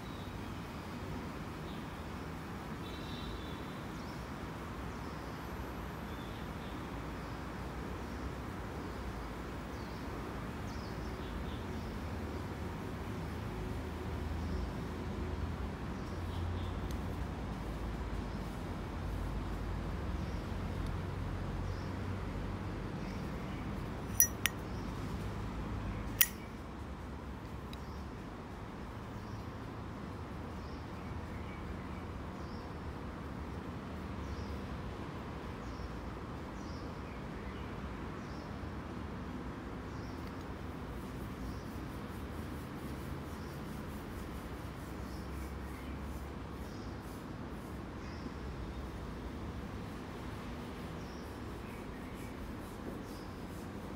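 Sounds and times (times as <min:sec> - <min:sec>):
lighter lid clicking open: 0:24.1 - 0:24.6
lighter lid snapping shut: 0:24.1 - 0:24.6.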